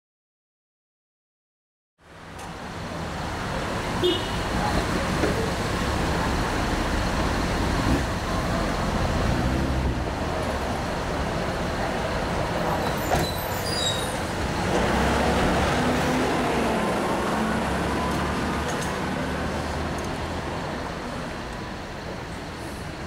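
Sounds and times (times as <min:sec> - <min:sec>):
bus passing close: 0:02.0 - 0:23.0
cars driving past: 0:02.1 - 0:23.0.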